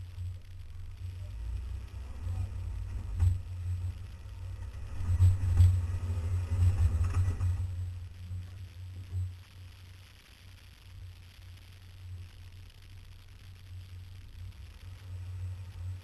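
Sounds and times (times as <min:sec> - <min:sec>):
vehicle engine rumble: 0:00.0 - 0:11.8, 0:13.7 - 0:16.0.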